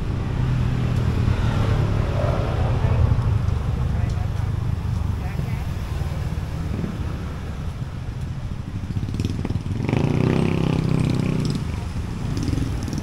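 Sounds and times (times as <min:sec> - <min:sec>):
vehicle engine passing close: 0:00.0 - 0:08.0
road traffic: 0:00.0 - 0:13.0.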